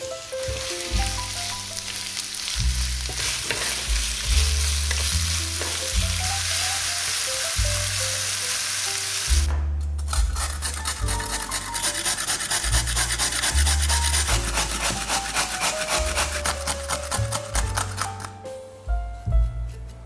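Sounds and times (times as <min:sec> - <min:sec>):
onions sizzling in a pan: 0:00.0 - 0:09.5
wooden spatula stirring: 0:00.3 - 0:07.4, 0:10.1 - 0:18.3.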